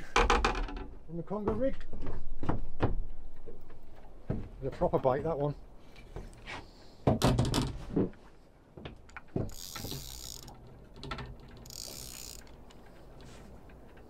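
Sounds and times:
rod and reel handling knocks: 0:08.9 - 0:14.0
fishing reel gears whirring: 0:09.4 - 0:13.3.

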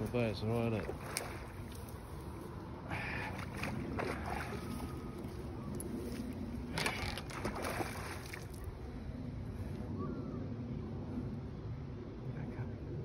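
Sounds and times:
wind rumbling on microphone: 0:00.0 - 0:13.0
fish splashing in water: 0:00.8 - 0:02.2, 0:03.1 - 0:05.5, 0:06.6 - 0:08.7.

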